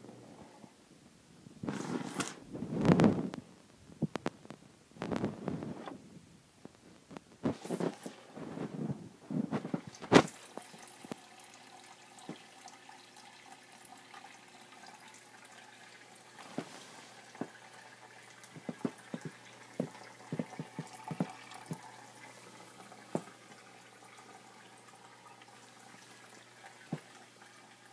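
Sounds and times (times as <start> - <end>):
low steady hum: 0.0 - 27.9
water drips: 9.8 - 27.9
small waterfall trickling: 9.9 - 27.9.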